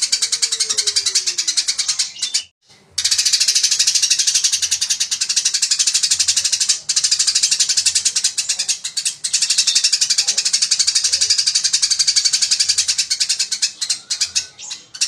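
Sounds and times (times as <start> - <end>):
sparrow chattering: 0.0 - 15.0.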